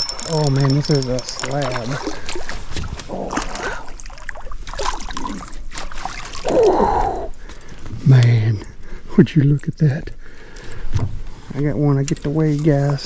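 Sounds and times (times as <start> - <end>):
fish splashing and thrashing: 0.0 - 7.8
water dripping: 0.0 - 8.7.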